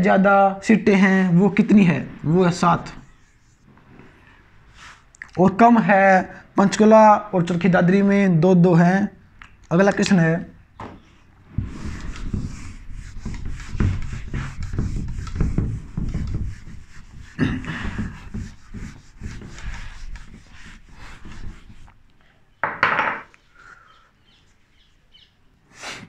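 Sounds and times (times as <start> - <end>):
rubbing and scraping: 1.3 - 5.0, 11.0 - 22.0.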